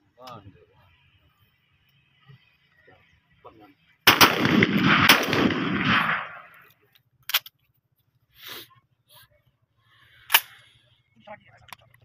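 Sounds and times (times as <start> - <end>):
shotgun reports: 4.1 - 6.5
sharp gunshot crack: 4.1 - 6.6.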